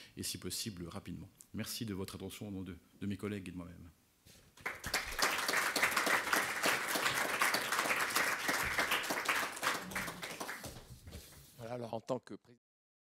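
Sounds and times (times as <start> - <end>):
audience applauding: 4.6 - 10.9.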